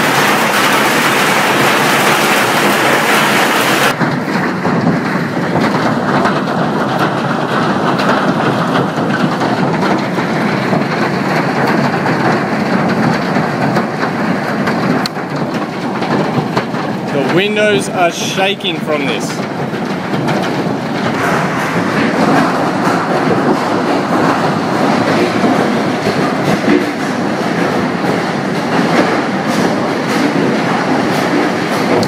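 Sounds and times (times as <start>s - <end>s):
heavy hail pelting down: 0.0s - 32.0s.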